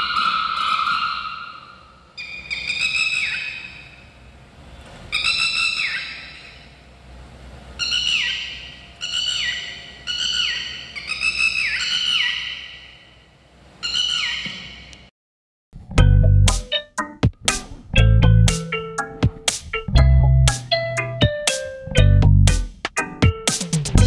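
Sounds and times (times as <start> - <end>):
lapwing calls through a speaker: 0.0 - 4.0, 5.1 - 6.6, 7.8 - 13.1, 13.8 - 14.8.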